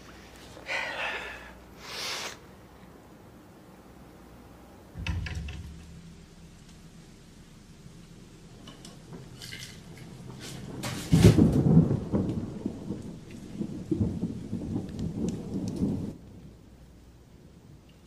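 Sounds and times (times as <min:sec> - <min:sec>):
low thunder rumble: 0:04.8 - 0:17.8
thunder crackling: 0:04.8 - 0:18.0
loud thunder clap: 0:05.0 - 0:16.5.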